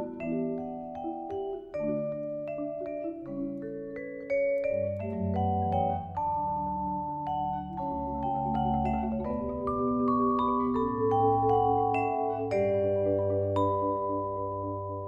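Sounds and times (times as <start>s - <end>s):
marimba notes: 0.0s - 15.0s
vibraphone notes: 0.0s - 15.0s.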